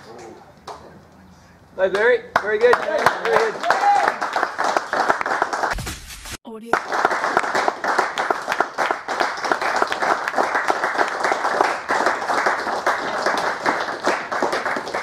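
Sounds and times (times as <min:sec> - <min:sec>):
crowd applause: 0:02.4 - 0:05.8, 0:06.8 - 0:15.0.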